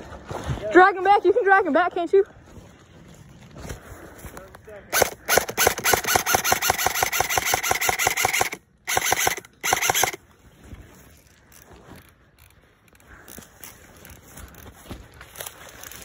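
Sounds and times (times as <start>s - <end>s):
airsoft gun firing bursts: 4.9s - 10.2s.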